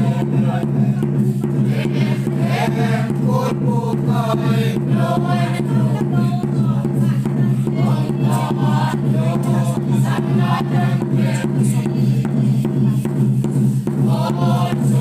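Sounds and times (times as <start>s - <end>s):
regular beat: 0.0s - 15.0s
congregation singing a hymn: 1.6s - 6.1s, 7.8s - 12.2s, 14.0s - 15.0s.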